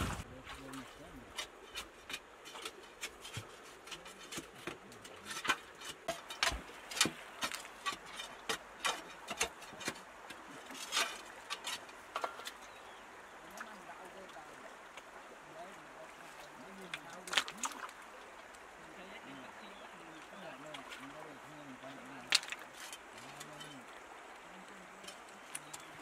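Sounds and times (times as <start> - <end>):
metal bar striking stones and gravel: 1.3 - 12.8.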